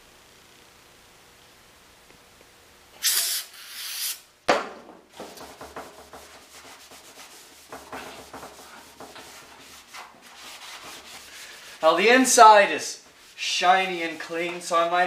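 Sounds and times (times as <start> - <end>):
aerosol spray hissing: 3.0 - 4.2
towel scrubbing metal tank: 5.2 - 15.0.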